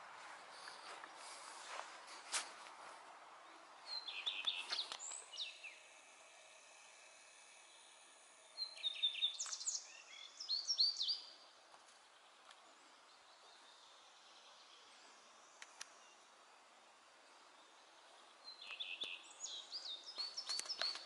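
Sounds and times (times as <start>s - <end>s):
faint outdoor hiss: 0.0s - 21.0s.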